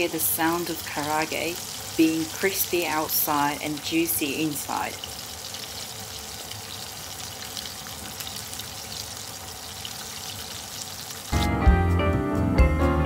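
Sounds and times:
food deep-frying in oil: 0:00.0 - 0:11.4
music with guitar and drums: 0:11.3 - 0:13.0.

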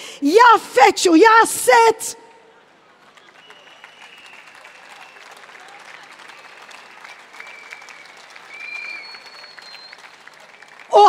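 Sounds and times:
crowd applauding: 0:02.6 - 0:11.0
long steady whistles: 0:03.4 - 0:05.4, 0:06.2 - 0:10.2.

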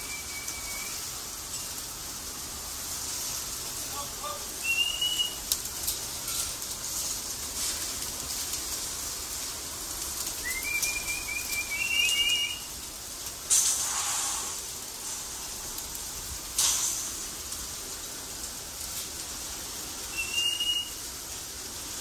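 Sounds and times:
high whistling: 0:00.0 - 0:01.1, 0:04.6 - 0:05.4, 0:10.4 - 0:12.7, 0:20.1 - 0:21.0
steady hiss: 0:00.0 - 0:22.0
loud burst of noise: 0:13.4 - 0:17.4.

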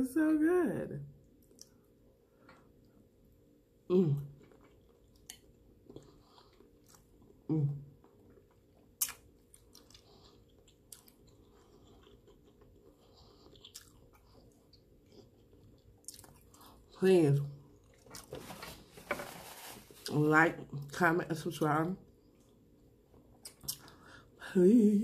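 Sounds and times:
close chewing with wet smacks: 0:04.3 - 0:16.9, 0:22.1 - 0:24.0.

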